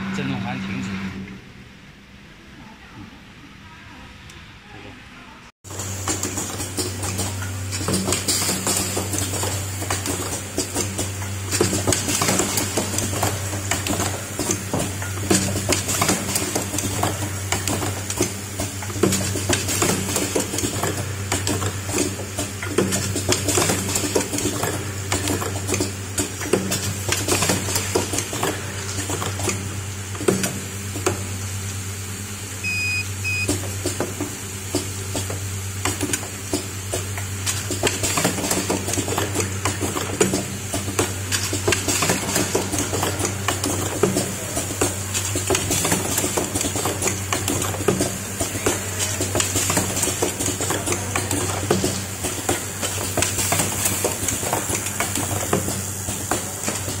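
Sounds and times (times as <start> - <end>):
machine humming: 0.0 - 2.4
short high beeps: 32.6 - 33.5.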